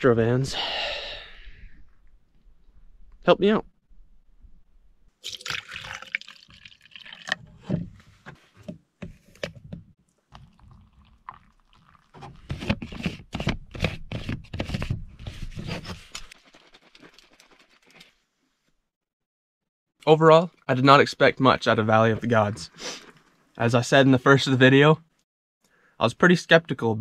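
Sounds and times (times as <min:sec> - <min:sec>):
water pouring into plastic bottle: 0:05.2 - 0:07.4, 0:10.3 - 0:12.6
shaker bottle shaken with sloshing: 0:16.3 - 0:18.0.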